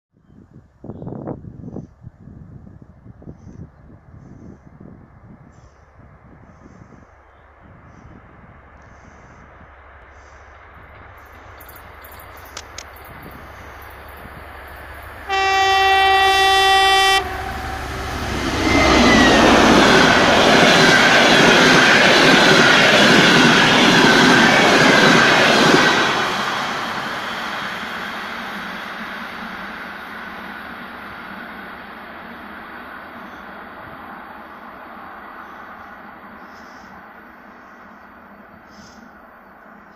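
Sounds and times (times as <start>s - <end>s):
wind buffeting microphone: 0.2s - 27.8s
train engine and wheels on rails: 1.1s - 39.9s
steady high tone: 11.6s - 29.0s
locomotive horn blast: 15.2s - 20.1s.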